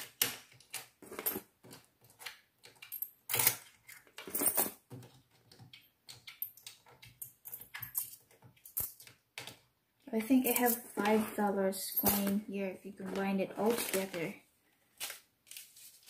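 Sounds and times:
coins clinking on table: 4.2 - 4.8, 6.3 - 9.1.

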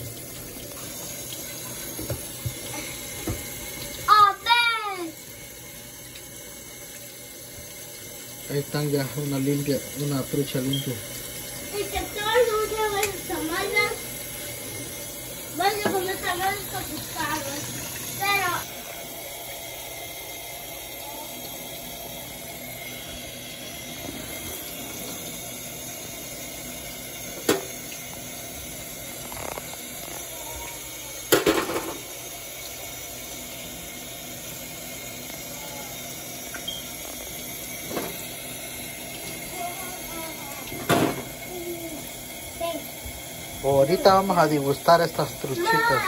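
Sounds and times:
tap running into sink: 0.0 - 4.1, 9.2 - 14.9, 15.6 - 18.6, 27.2 - 32.1, 37.6 - 38.4, 39.2 - 41.5.

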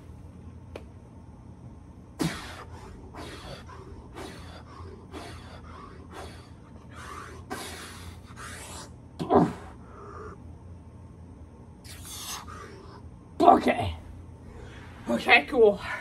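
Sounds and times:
man breathing hard: 2.2 - 9.0, 9.6 - 10.5.

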